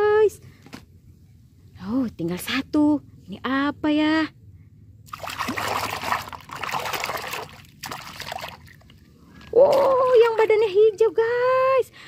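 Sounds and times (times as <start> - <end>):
hand splashing in water: 5.1 - 8.8.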